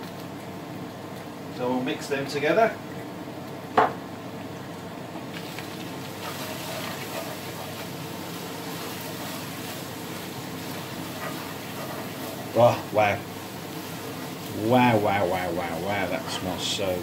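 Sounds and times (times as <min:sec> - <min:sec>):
food sizzling in hot oil: 0:03.2 - 0:17.0
wooden spoon scraping pot: 0:06.2 - 0:07.9.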